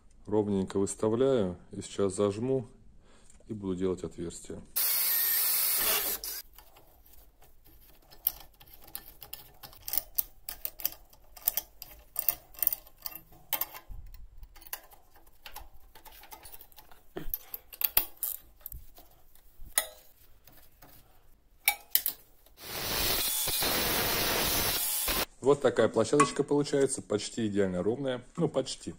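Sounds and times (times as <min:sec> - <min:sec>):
angle grinder cutting steel: 0:04.8 - 0:06.4, 0:22.6 - 0:25.3.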